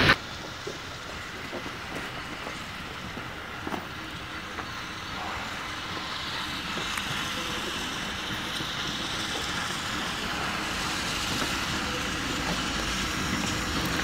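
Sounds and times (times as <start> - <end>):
steam locomotive rushing: 0.0 - 14.0.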